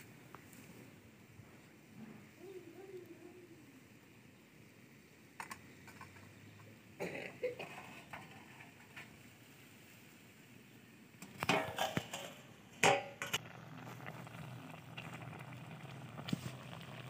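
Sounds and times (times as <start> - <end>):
fire crackling: 0.0 - 17.0
syrup bubbling: 11.1 - 17.0.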